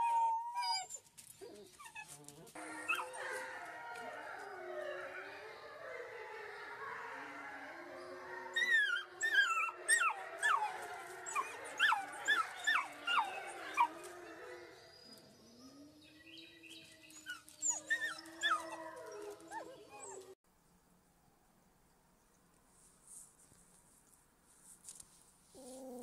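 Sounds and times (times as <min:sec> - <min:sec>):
wolf pups howling: 0:00.0 - 0:20.4.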